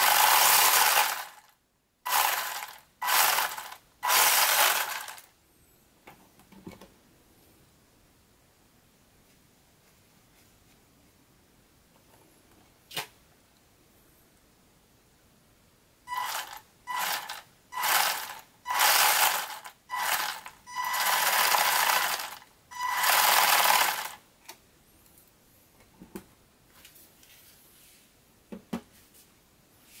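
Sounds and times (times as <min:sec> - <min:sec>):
toy car motor whirring: 0:00.0 - 0:01.5, 0:02.1 - 0:05.3, 0:16.1 - 0:24.2.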